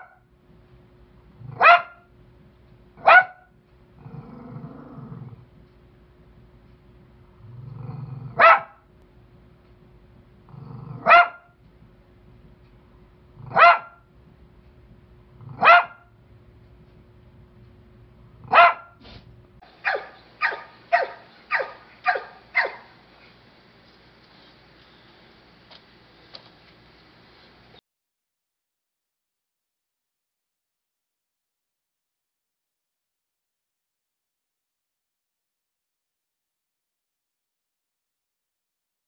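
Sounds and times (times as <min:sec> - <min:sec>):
small dog barking: 0:00.0 - 0:00.2, 0:01.5 - 0:02.1, 0:03.0 - 0:03.5, 0:08.3 - 0:08.8, 0:11.0 - 0:11.6, 0:13.4 - 0:14.0, 0:15.5 - 0:16.1, 0:18.4 - 0:19.0, 0:19.7 - 0:23.0
rapid dog barks: 0:01.5 - 0:02.0, 0:03.0 - 0:03.5, 0:08.3 - 0:08.8, 0:11.0 - 0:11.5, 0:13.4 - 0:14.0, 0:15.4 - 0:16.1, 0:18.4 - 0:19.0, 0:19.6 - 0:23.1
dog growling: 0:03.9 - 0:05.5, 0:07.3 - 0:08.4, 0:10.4 - 0:11.2, 0:13.3 - 0:13.6, 0:15.3 - 0:15.7.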